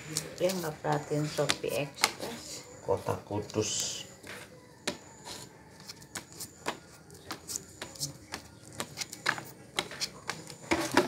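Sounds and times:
playing cards clicking on wood: 0:05.8 - 0:10.6.

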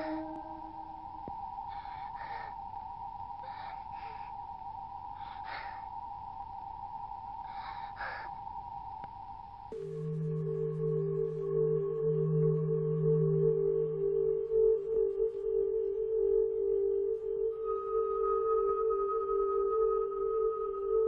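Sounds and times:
held musical tone: 0:00.0 - 0:08.1, 0:09.6 - 0:21.0
deep ringing bell-like tone: 0:00.0 - 0:21.0.

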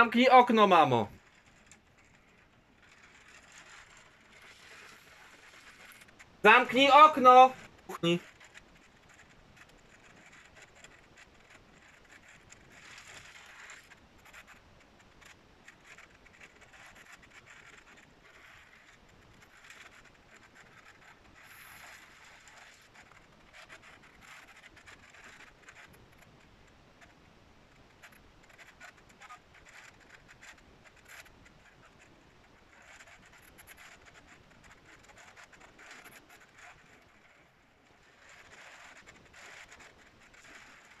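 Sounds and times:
raindrops pattering: 0:01.2 - 0:06.5.

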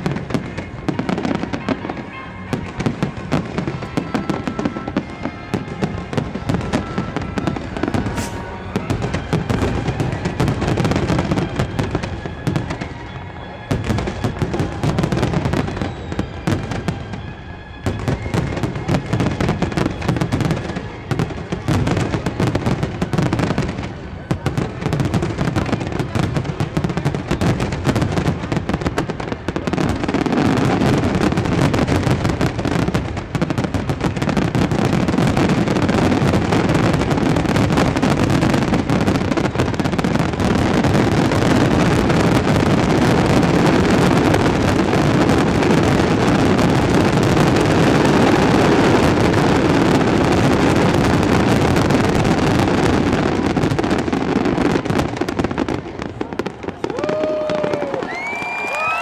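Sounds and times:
fireworks barrage crackling: 0:00.0 - 0:59.0.

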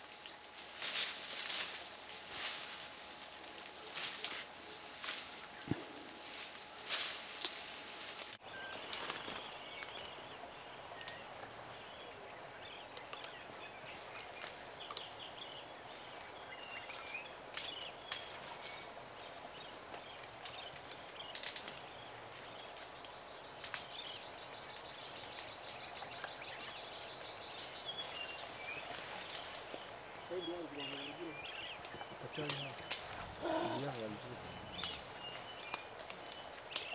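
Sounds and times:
steady hiss: 0:00.0 - 0:09.2.

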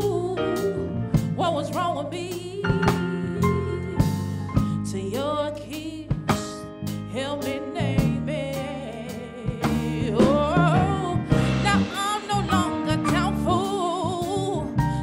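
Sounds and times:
woman singing with vibrato: 0:00.0 - 0:04.1, 0:04.7 - 0:15.0
band playing soul music: 0:00.0 - 0:15.0
drum kit hits and cymbals: 0:09.5 - 0:14.9.

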